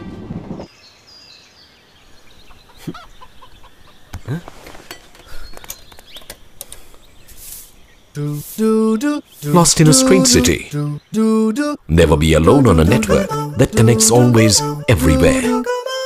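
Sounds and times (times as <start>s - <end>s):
small birds chirping: 0.7s - 15.2s
chickens clucking: 2.4s - 6.0s.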